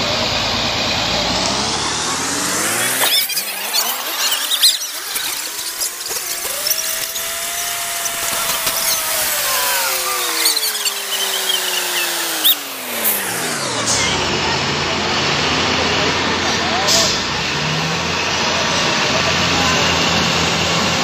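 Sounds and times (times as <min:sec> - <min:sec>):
machine whine: 0:00.0 - 0:18.4
heavy diesel machinery straining: 0:00.0 - 0:21.0
high squeals: 0:01.7 - 0:14.3.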